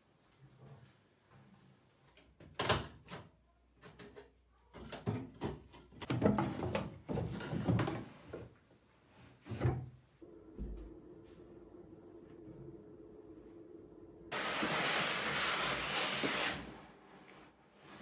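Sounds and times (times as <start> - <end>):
wooden knocks and clatters: 3.9 - 8.5.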